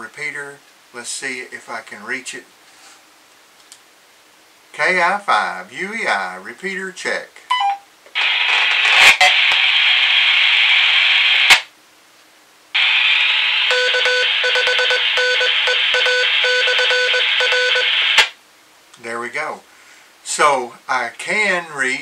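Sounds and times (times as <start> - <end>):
radio static hiss: 8.1 - 11.8, 12.7 - 18.4
morse code beeping: 13.7 - 18.2.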